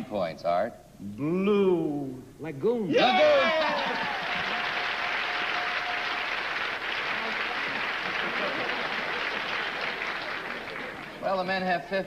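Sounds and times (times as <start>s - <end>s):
audience applauding: 3.2s - 11.7s.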